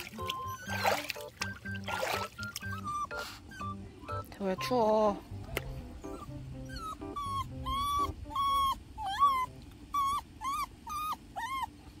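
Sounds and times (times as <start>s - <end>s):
dog whimpering: 0.0s - 12.0s.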